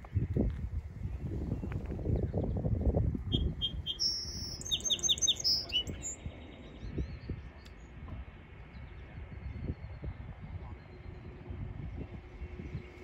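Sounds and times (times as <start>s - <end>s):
small songbird singing: 3.2s - 8.0s.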